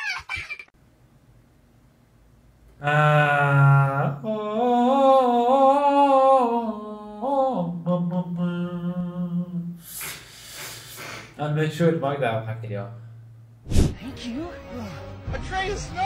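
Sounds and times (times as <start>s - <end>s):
man chanting long tones: 2.8s - 9.8s.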